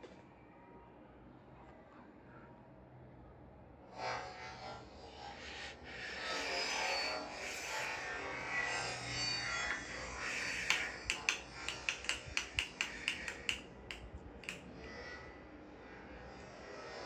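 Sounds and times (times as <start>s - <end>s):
rattling clicks: 10.7s - 14.7s.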